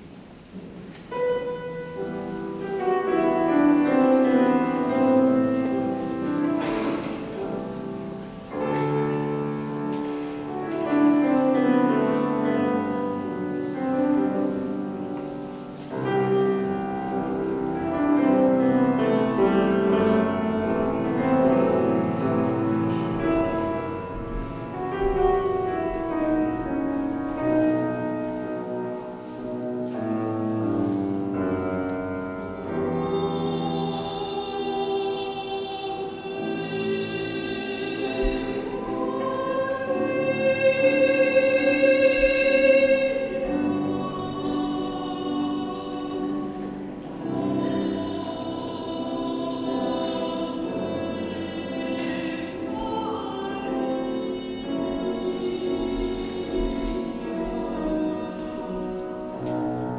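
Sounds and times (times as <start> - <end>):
grand piano classical passage: 0.0 - 59.9.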